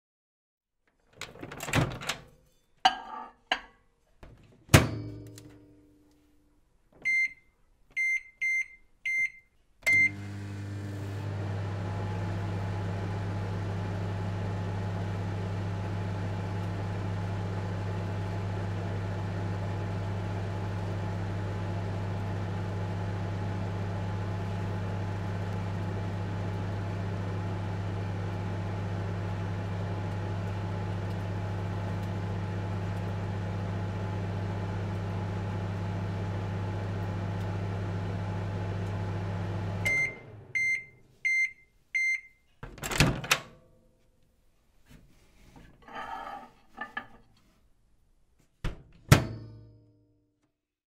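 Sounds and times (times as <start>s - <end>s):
microwave beeps: 7.0s - 10.6s, 39.8s - 42.4s
microwave humming: 9.8s - 41.4s.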